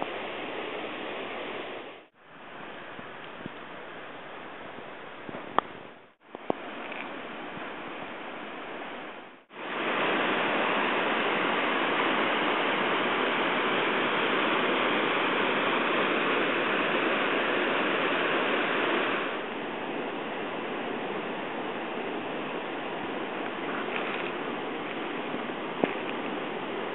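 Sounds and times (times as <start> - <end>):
river rapids rushing: 9.5 - 26.9.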